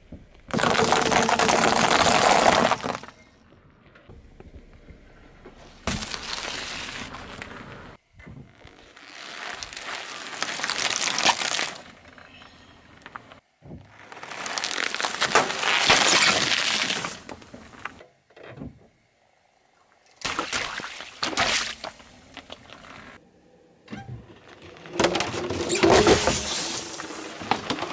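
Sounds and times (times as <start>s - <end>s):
tyre crushing balloons and packets: 0.4s - 3.2s, 5.7s - 12.4s, 13.7s - 18.0s, 24.4s - 27.9s.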